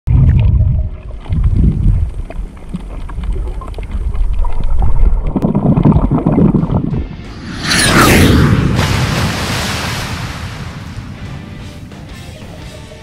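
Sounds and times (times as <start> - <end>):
small clicks and crackles: 2.0 - 5.3
underwater rush of water: 8.7 - 11.4.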